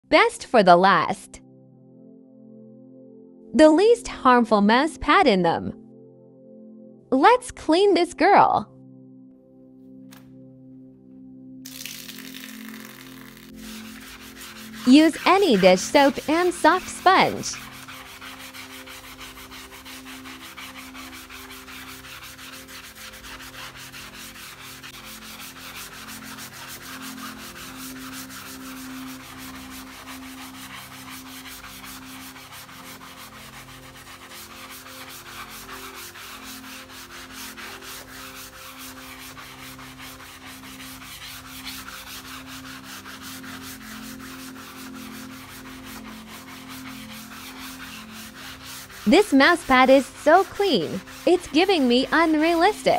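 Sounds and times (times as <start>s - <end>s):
sponge scrubbing a mouse pad: 11.7s - 52.9s.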